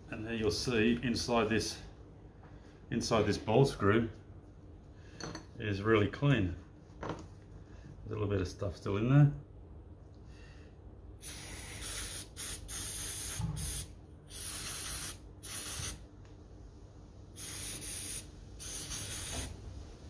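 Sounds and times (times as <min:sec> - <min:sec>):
aerosol spray hissing bursts: 0:11.2 - 0:16.0, 0:17.4 - 0:19.6.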